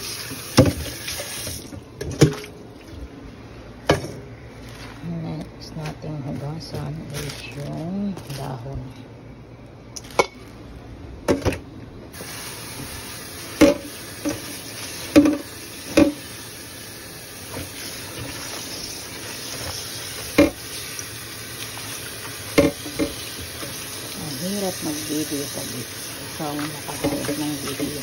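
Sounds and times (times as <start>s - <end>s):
tap water running into bowl: 0.0s - 2.5s, 12.2s - 16.4s, 17.4s - 28.0s.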